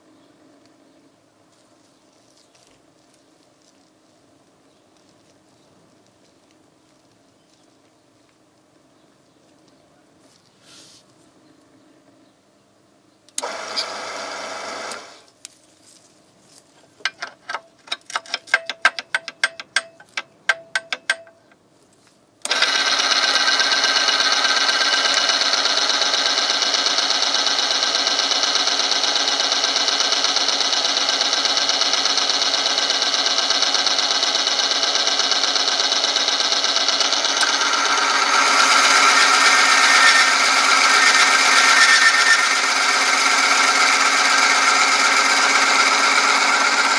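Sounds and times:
machine grinding rub: 0:32.5 - 0:46.9
sharp clicks: 0:35.7 - 0:46.9.

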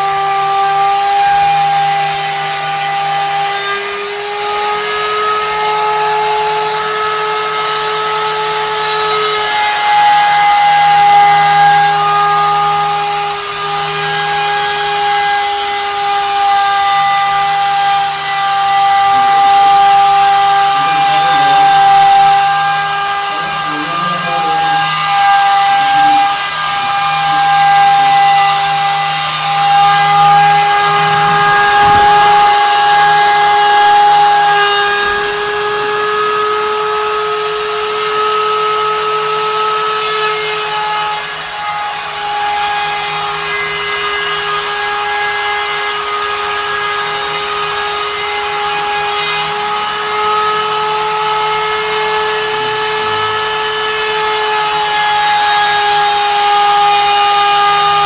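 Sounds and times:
router spindle milling wood: 0:00.0 - 0:58.0.

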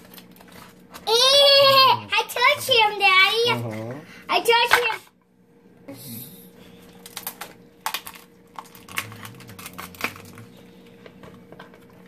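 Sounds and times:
lobster shell cracking: 0:07.0 - 0:10.6.

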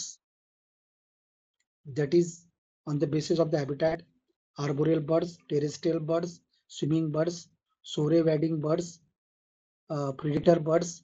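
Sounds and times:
man speaking: 0:01.9 - 0:04.0, 0:04.6 - 0:09.0, 0:09.9 - 0:11.0.

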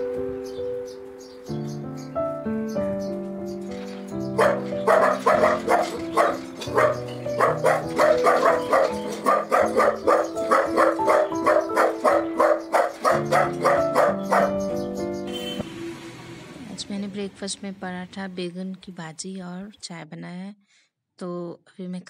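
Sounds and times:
background music: 0:00.0 - 0:19.1
dog barking: 0:04.3 - 0:14.8.

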